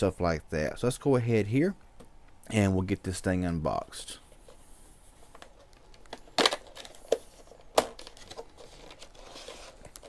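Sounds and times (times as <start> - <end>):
cardboard scraping and rustling: 7.2 - 10.0.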